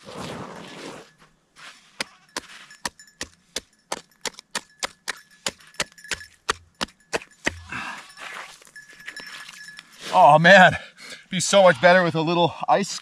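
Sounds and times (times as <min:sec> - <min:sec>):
hand tool chopping ice: 0:02.0 - 0:08.4.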